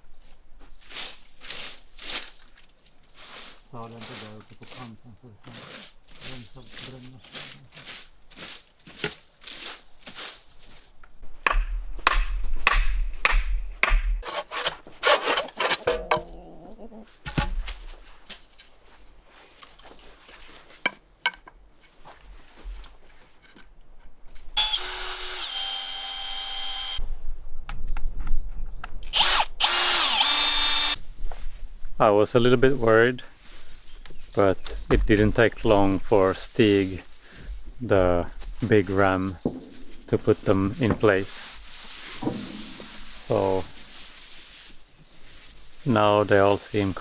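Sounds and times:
hand saw cutting stems: 4.2s - 9.6s, 11.5s - 16.4s, 24.6s - 27.0s, 29.1s - 31.0s
small motorised tool whirring: 24.6s - 27.0s, 29.1s - 31.0s.

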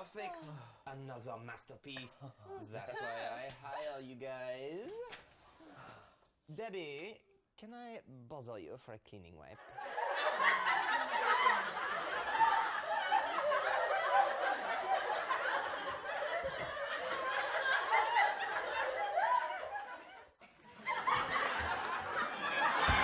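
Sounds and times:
audience laughter: 9.6s - 23.0s.

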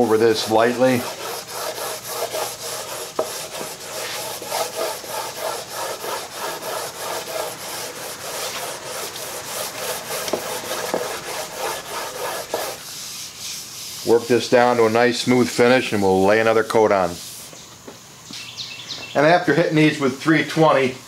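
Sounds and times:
sandpaper rubbing on wood: 0.0s - 14.9s, 16.8s - 17.5s.

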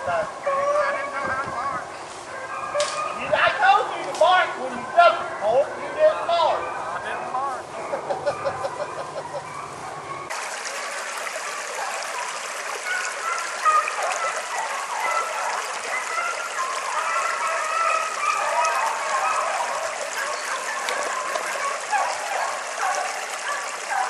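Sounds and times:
creek water babbling over rocks: 10.3s - 24.0s.

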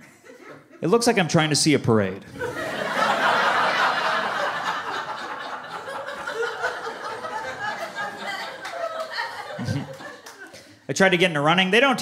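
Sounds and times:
audience laughing: 2.3s - 10.7s.

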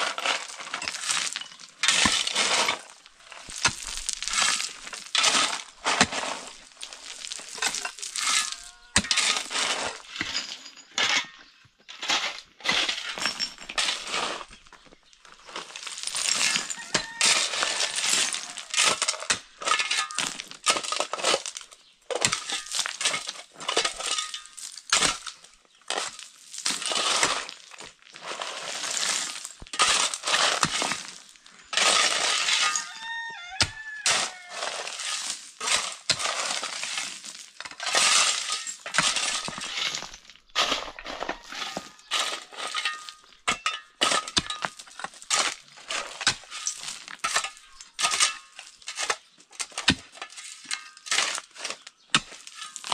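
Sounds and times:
shovel scraping gravel: 0.0s - 52.9s
metal clinking on rock: 10.2s - 11.5s, 37.6s - 48.9s.

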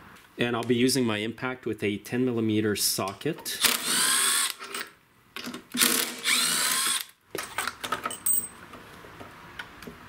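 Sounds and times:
impact driver whining: 3.6s - 4.8s, 5.8s - 7.2s
clicks and knocks of parts: 4.6s - 6.2s, 7.3s - 8.8s.

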